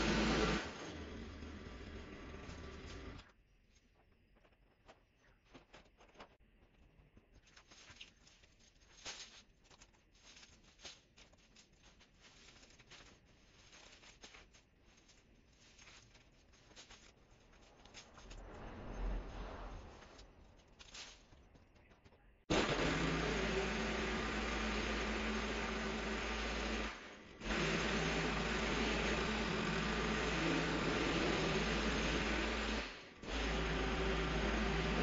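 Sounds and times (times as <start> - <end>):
branches and leaves rustling: 7.4 - 21.4.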